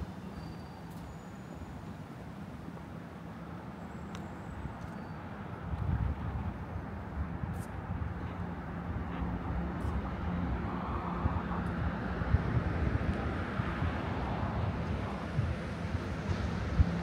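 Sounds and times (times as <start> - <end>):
traffic engine rumble: 0.0 - 17.0
passing vehicle: 5.3 - 17.0.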